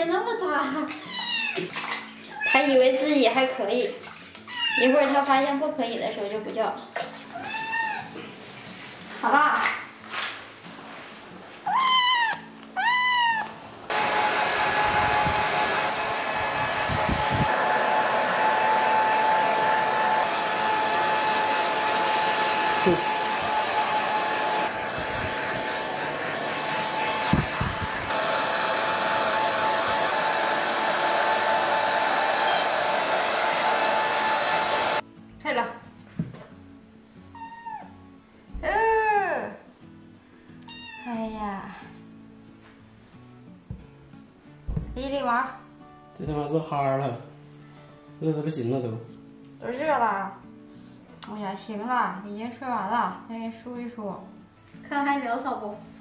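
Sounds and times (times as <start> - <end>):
kitten meowing: 1.0 - 1.7, 4.5 - 5.0, 7.3 - 8.1, 11.7 - 13.6, 37.3 - 38.0, 40.7 - 41.2
hair dryer whining: 13.9 - 35.0.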